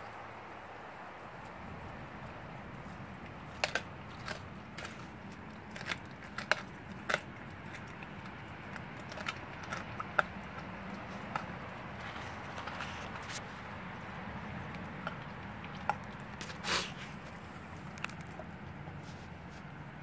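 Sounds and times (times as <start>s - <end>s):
dog crunching bones: 1.4s - 19.9s.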